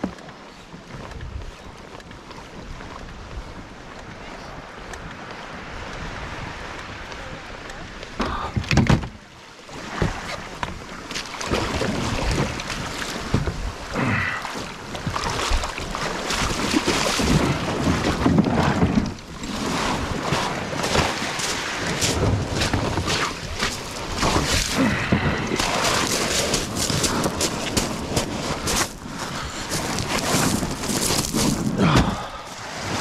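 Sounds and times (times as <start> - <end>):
wind buffeting microphone: 0.8 - 9.2, 10.0 - 33.0
waves breaking on shingle: 4.8 - 33.0
pebbles rattling in surf: 15.0 - 33.0.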